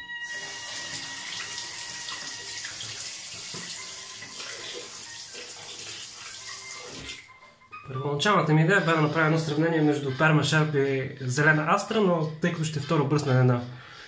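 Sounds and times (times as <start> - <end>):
tap running into a sink: 0.4 - 7.2.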